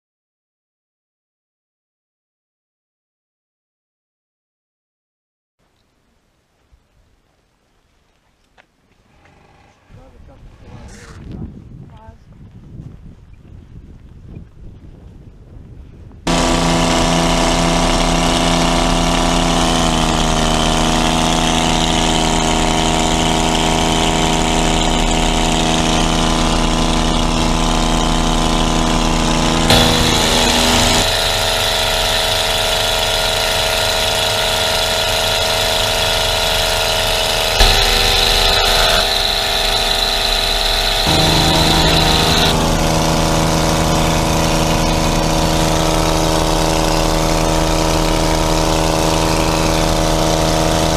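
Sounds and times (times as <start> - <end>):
aircraft engine droning: 16.3 - 50.9.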